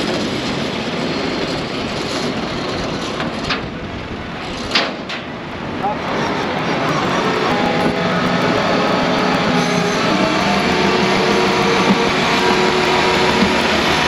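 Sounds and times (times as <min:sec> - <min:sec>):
hydraulic winch and engine drone: 0:05.8 - 0:14.0
winch whine: 0:05.8 - 0:14.0.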